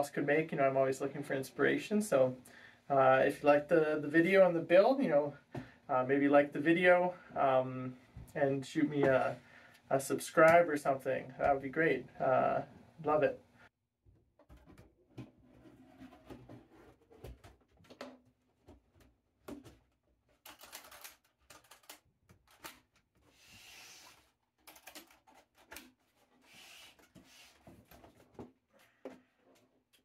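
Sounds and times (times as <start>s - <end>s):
case scraping on wood: 15.2s - 17.4s.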